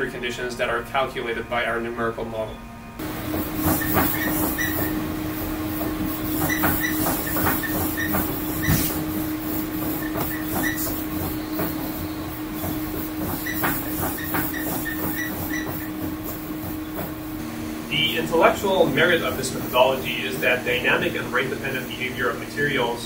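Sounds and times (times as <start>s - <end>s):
hydraulic hum and hiss: 0.0s - 23.0s
actuator clicks and knocks: 6.4s - 9.0s, 12.6s - 17.2s.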